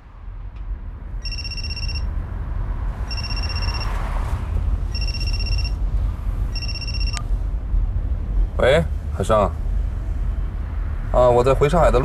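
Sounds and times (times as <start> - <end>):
mobile phone ringing: 1.2 - 2.1, 3.1 - 4.0, 4.9 - 5.8, 6.6 - 7.2.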